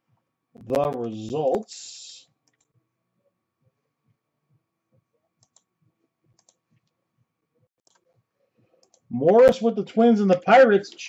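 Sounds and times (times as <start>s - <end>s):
computer mouse clicks: 2.4s - 2.8s, 5.4s - 5.7s, 6.3s - 7.0s, 7.8s - 8.1s, 8.8s - 9.1s.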